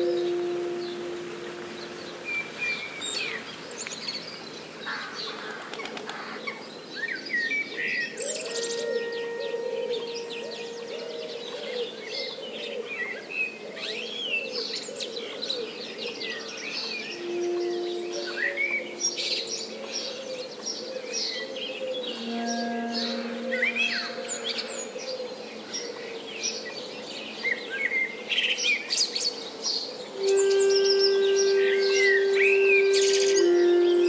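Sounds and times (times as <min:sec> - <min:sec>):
soft low held notes: 0:00.0 - 0:03.4, 0:08.2 - 0:12.1, 0:17.1 - 0:20.1, 0:22.0 - 0:24.9, 0:30.2 - 0:34.0
birds chirping and singing: 0:08.2 - 0:12.0, 0:30.2 - 0:34.0
whistled bird calls: 0:17.0 - 0:19.7, 0:30.2 - 0:34.0.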